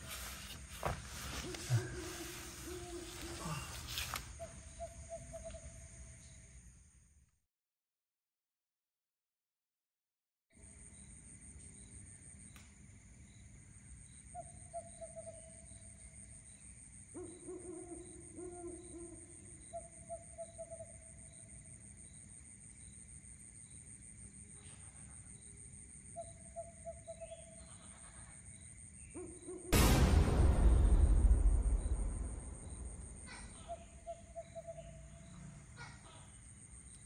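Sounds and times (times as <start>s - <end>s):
loud burst of noise: 29.8s - 33.9s.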